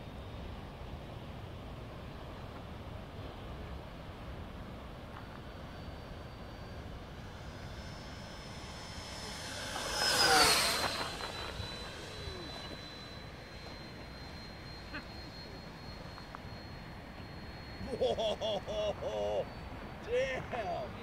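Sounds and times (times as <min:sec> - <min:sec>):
electric ducted fan jet whine: 0:00.0 - 0:21.0
rush of air: 0:06.8 - 0:13.6.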